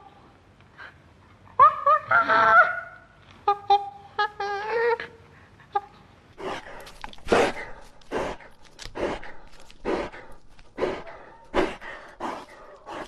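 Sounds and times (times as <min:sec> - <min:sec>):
dog panting: 0:06.4 - 0:13.0.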